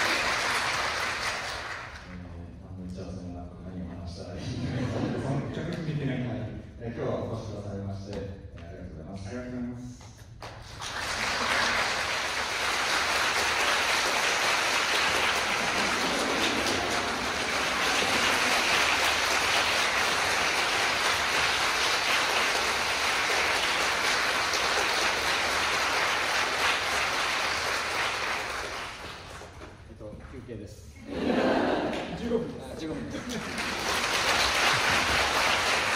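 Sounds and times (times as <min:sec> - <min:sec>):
audience applauding: 0:00.0 - 0:02.2, 0:10.4 - 0:29.7, 0:32.8 - 0:35.9.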